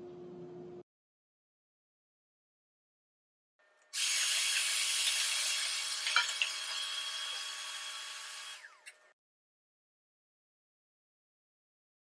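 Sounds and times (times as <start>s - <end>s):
shop vacuum running: 5.3s - 9.1s.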